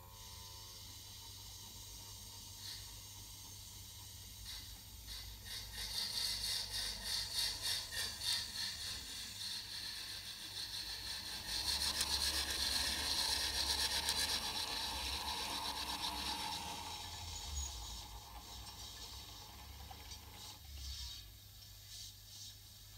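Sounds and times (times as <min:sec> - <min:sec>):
electric motor whine: 0:10.2 - 0:20.6.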